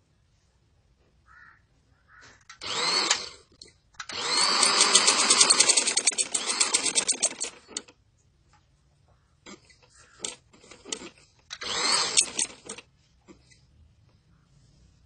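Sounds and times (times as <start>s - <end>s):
sewing machine stitching: 2.6s - 3.4s, 4.1s - 7.9s, 10.2s - 12.8s.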